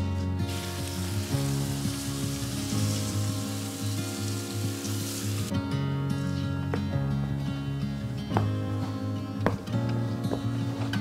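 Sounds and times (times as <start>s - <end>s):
soft instrumental music: 0.0s - 11.0s
steady hiss: 0.4s - 5.5s.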